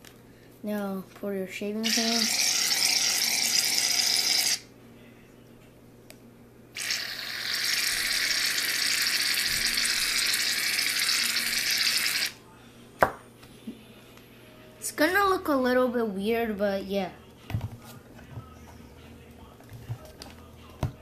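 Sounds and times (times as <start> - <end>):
aerosol can hissing: 6.8 - 12.4.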